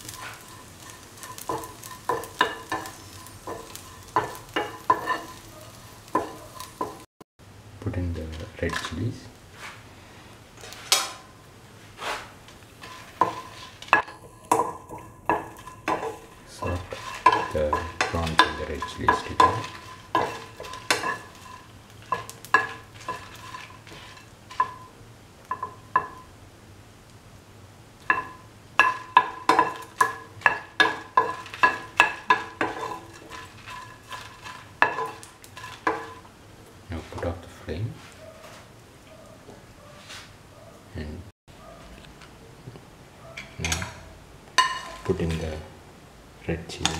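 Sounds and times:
spatula swishing in pan: 0.0 - 7.0, 9.5 - 11.0, 11.7 - 24.9, 28.1 - 36.2
utensil clinking against pan: 0.0 - 7.0, 12.8 - 24.9, 25.5 - 26.3, 28.1 - 36.3, 43.4 - 45.6.

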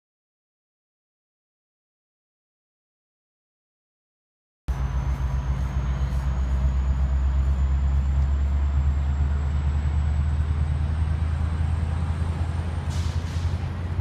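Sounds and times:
diesel train engine droning: 4.7 - 14.0.

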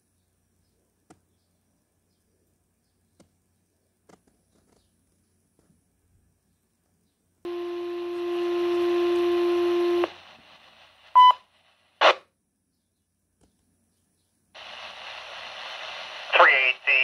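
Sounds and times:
radio alert tone: 7.5 - 11.4, 14.6 - 17.0
burst of static: 7.5 - 12.2, 14.6 - 17.0
radio hiss: 7.5 - 12.2, 14.6 - 17.0.

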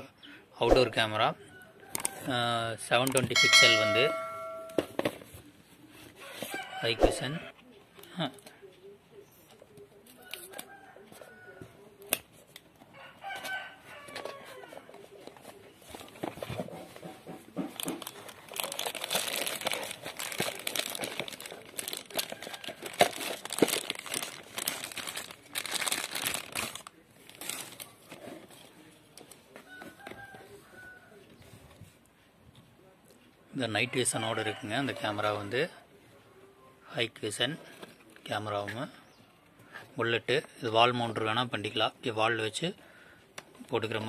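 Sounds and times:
plastic bag crinkling: 17.8 - 28.1.

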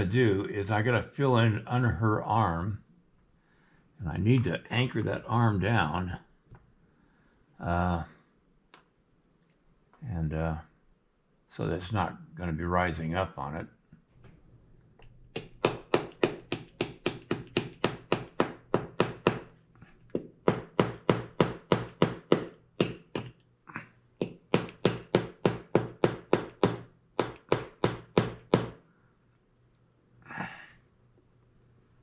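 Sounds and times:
small hammer tapping wire: 20.1 - 23.5.

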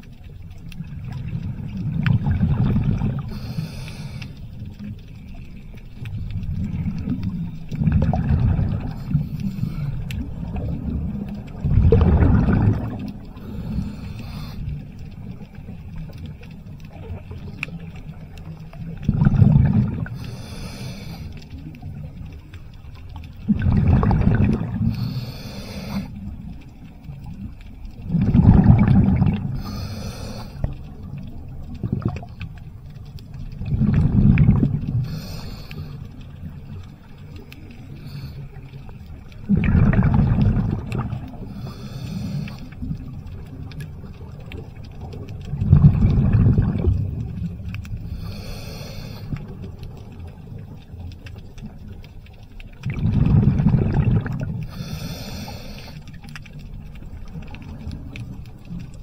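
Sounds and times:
exhaled bubbles rumbling underwater: 0.0 - 59.0
regulator hiss on inhale: 3.1 - 4.8, 8.8 - 10.6, 13.3 - 15.3, 20.0 - 21.7, 24.8 - 26.4, 29.5 - 31.0, 34.9 - 36.4, 37.3 - 38.9, 41.4 - 42.9, 47.9 - 49.7, 54.6 - 56.4.

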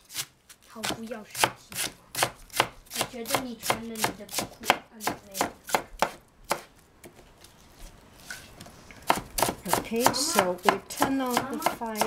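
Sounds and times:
knife chopping on wooden board: 0.8 - 7.2, 9.0 - 12.0.

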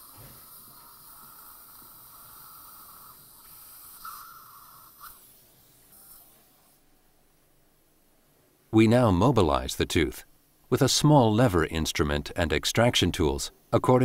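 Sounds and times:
dental suction hissing: 0.0 - 6.4.

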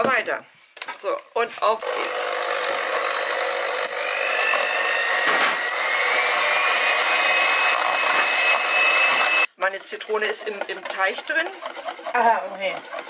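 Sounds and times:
electric hand mixer whirring: 1.8 - 9.5, 10.4 - 13.0.

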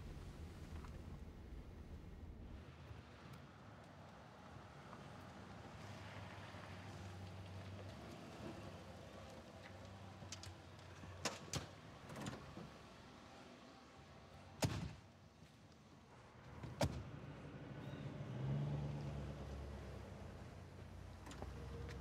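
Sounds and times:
low hum: 0.0 - 2.8.

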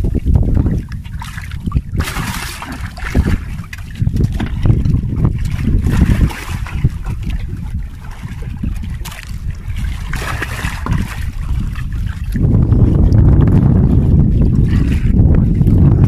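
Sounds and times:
water sloshing and splashing: 0.0 - 16.0
wind buffeting microphone: 0.0 - 16.0
fish splashing at surface: 1.3 - 3.6.

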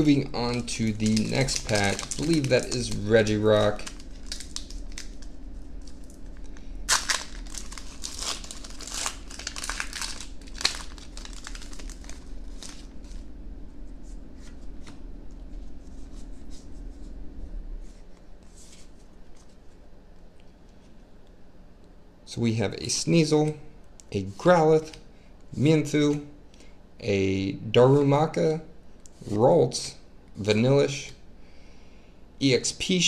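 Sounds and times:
foil wrapper crinkling and tearing: 0.0 - 13.2
cards clicking and rustling: 0.4 - 5.2.

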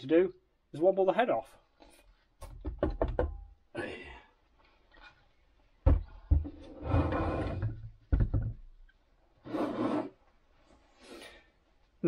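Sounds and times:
heavy knocks on workbench: 5.8 - 6.6.

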